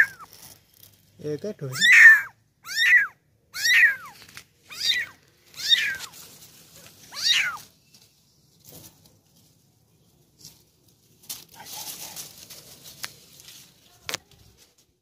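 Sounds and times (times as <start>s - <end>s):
kitten mewing: 0.0s - 0.3s, 1.7s - 6.1s, 7.1s - 7.6s.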